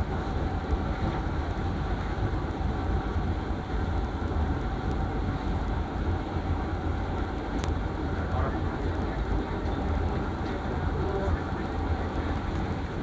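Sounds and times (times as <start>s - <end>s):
train rumble from inside coach: 0.0s - 13.0s.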